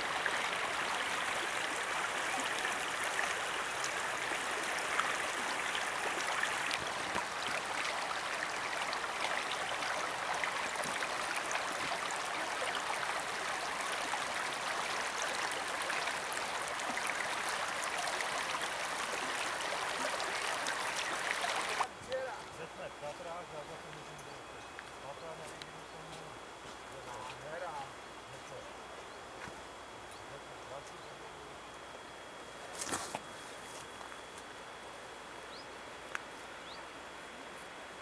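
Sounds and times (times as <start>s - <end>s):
water rippling over stones: 0.0s - 22.3s.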